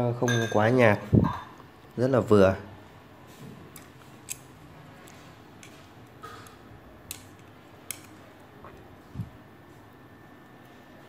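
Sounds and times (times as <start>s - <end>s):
chopsticks clicking in metal pot: 3.8s - 4.5s, 5.6s - 8.2s.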